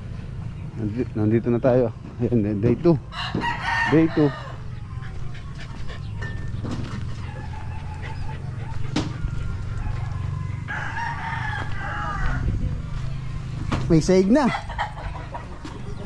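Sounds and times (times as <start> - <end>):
rooster crowing: 3.1 - 4.6, 9.2 - 12.6.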